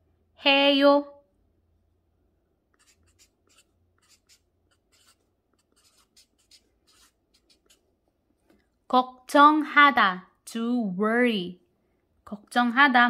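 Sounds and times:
marker pen scratching on paper: 0:02.7 - 0:08.0.

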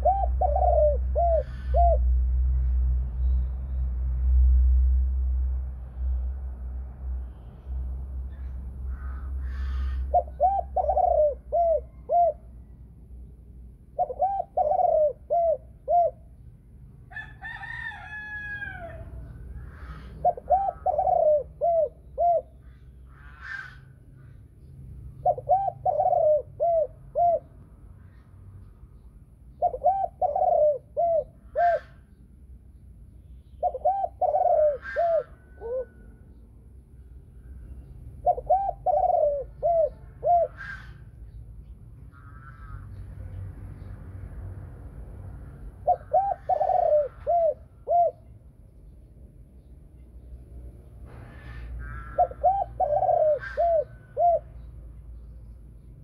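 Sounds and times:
dove cooing: 0:00.0 - 0:02.2, 0:09.1 - 0:12.7, 0:13.9 - 0:16.3, 0:17.5 - 0:23.8, 0:25.2 - 0:27.5, 0:29.5 - 0:32.1, 0:33.6 - 0:36.1, 0:38.2 - 0:41.1, 0:45.8 - 0:48.3, 0:51.3 - 0:54.7.

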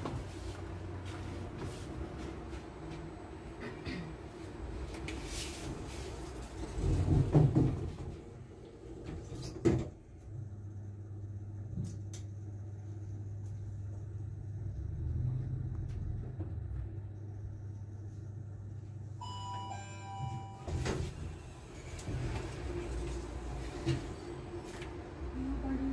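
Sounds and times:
elevator low hum: 0:00.0 - 0:25.9
elevator doors thumping shut: 0:20.0 - 0:21.4.

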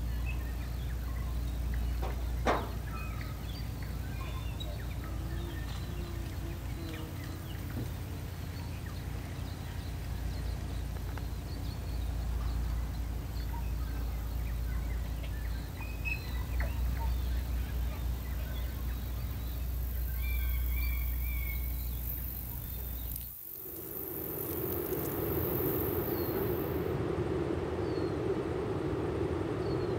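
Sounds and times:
birds chirping and calling: 0:00.1 - 0:23.3
wind rumble on microphone: 0:23.6 - 0:29.9.

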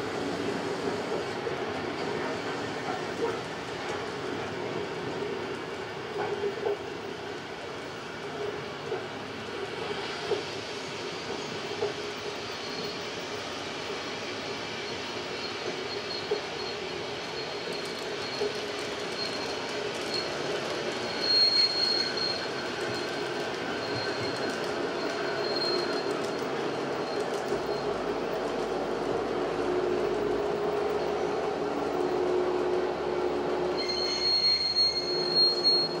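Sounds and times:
high-pitched wheel squeal: 0:21.0 - 0:26.4, 0:33.7 - 0:36.0.

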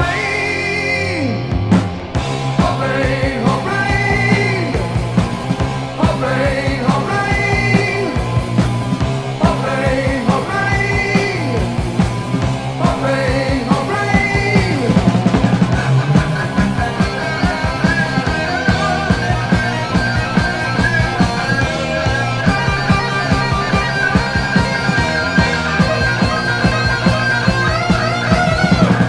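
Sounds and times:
heavy metal song: 0:00.0 - 0:29.0
drum hits: 0:11.6 - 0:29.0.

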